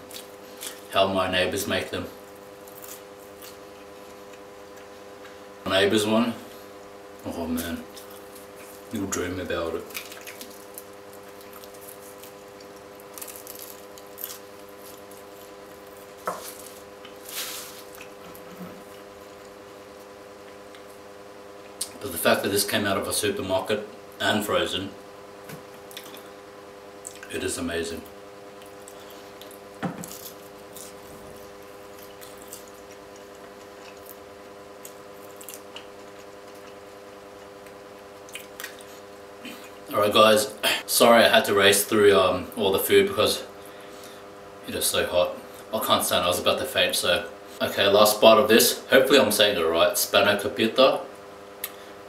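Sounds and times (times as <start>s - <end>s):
pastry crackling while chewed: 0.0s - 1.0s, 2.1s - 5.5s, 6.5s - 21.0s, 25.7s - 26.4s, 28.0s - 39.9s
electrical hum: 0.0s - 52.0s
wet mouth clicks and smacks: 38.2s - 38.9s.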